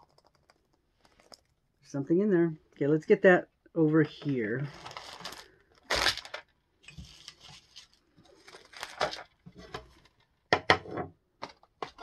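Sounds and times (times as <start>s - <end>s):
foil and packaging crinkling: 4.7s - 10.2s.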